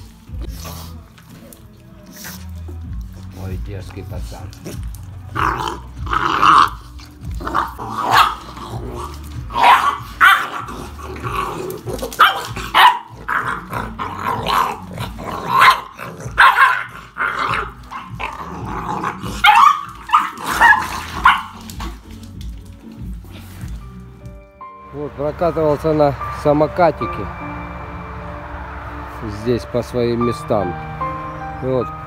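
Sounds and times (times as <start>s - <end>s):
puppies growling and barking: 4.4s - 24.4s.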